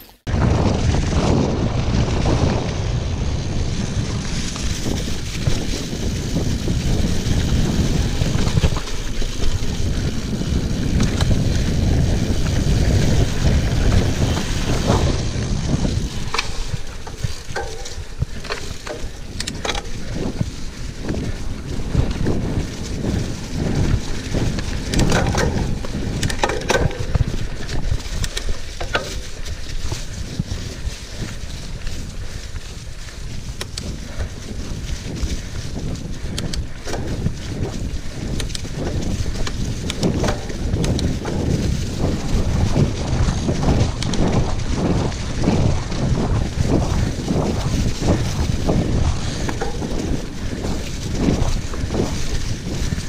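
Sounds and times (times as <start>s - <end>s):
bike rattling over rough ground: 0.0s - 53.0s
tyres crunching through leaves: 0.0s - 53.0s
wind on microphone: 0.0s - 53.0s
sharp clicks and snaps: 33.6s - 33.9s, 36.3s - 37.1s, 38.3s - 38.8s, 43.9s - 44.2s.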